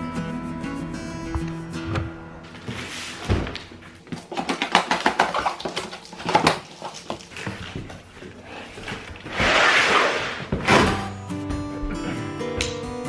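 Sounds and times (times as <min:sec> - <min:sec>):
cardboard lid scraping rustle: 0:02.5 - 0:03.6, 0:08.4 - 0:11.2
knife slitting packing tape: 0:09.3 - 0:11.1.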